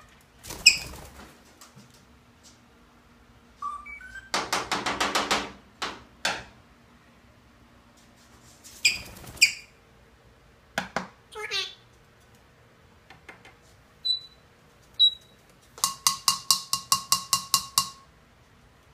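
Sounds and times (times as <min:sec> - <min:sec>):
parrot whistling: 0:03.6 - 0:04.3
parrot squawking: 0:08.8 - 0:09.8, 0:11.4 - 0:11.8.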